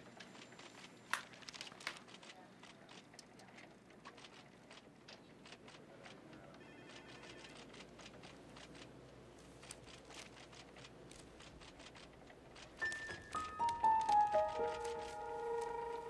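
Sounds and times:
paper rustling: 0.3 - 3.0, 9.5 - 16.0.

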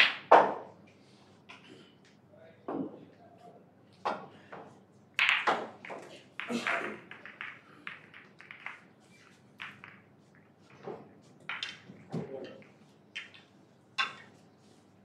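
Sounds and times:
cue ball cracking into balls: 0.0 - 0.7, 5.2 - 8.9, 9.6 - 10.1, 11.5 - 13.4
snooker balls clicking and knocking: 0.0 - 3.2, 3.9 - 14.8.

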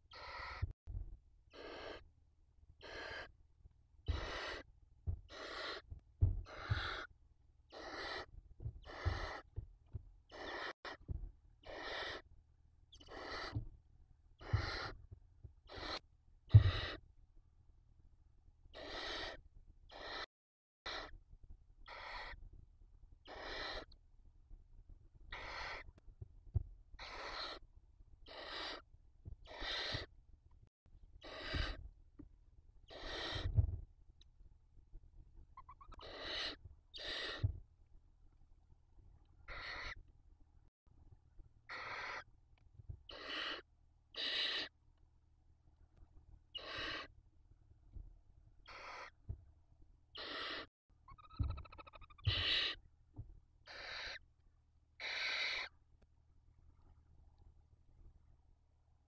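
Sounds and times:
owl chicks hissing calls: 0.1 - 0.7, 1.5 - 2.0, 2.8 - 3.4, 4.0 - 7.1, 7.7 - 9.5, 10.3 - 11.0, 11.6 - 12.3, 12.9 - 13.6, 14.4 - 15.0, 15.7 - 17.0, 18.7 - 20.3, 20.9 - 21.1, 21.8 - 22.4, 23.2 - 23.9, 25.3 - 25.9, 27.0 - 27.6, 28.2 - 30.1, 31.2 - 31.8, 32.9 - 33.5, 35.6 - 37.5, 39.4 - 40.0, 41.7 - 42.3, 43.1 - 44.8, 46.5 - 47.1, 48.6 - 49.2, 50.1 - 52.8, 53.7 - 54.2, 55.0 - 55.7
low thumps of birds shuffling: 5.0 - 7.1, 8.4 - 10.2, 11.0 - 11.4, 33.4 - 33.9.

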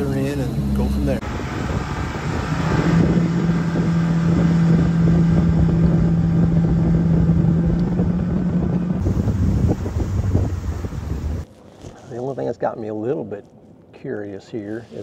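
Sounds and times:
wind and water rushing: 0.0 - 11.5
outboard motor running: 0.0 - 12.0.

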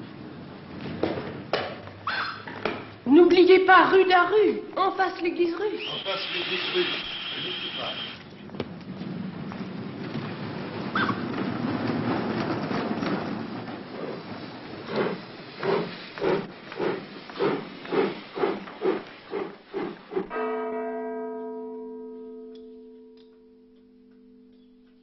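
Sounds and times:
train rumble and hiss: 2.9 - 20.4
wheels clattering over rail joints: 8.2 - 20.7.

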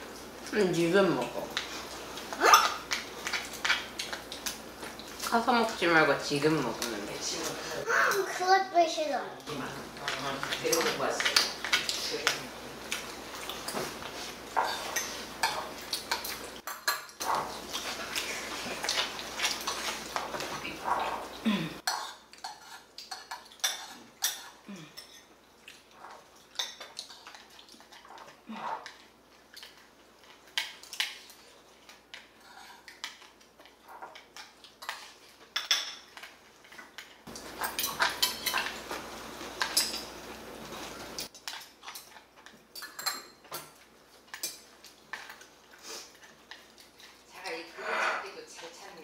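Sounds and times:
cutlery clinking on dishes: 13.6 - 17.9, 39.6 - 40.1, 42.8 - 45.4.

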